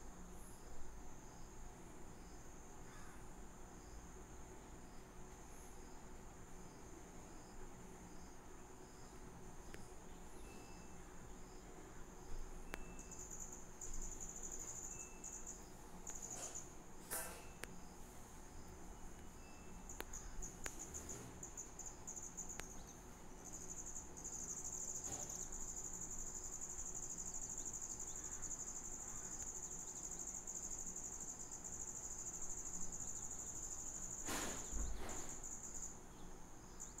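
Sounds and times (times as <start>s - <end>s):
insects trilling: 0.2s - 37.0s
brief bump: 34.2s - 35.4s.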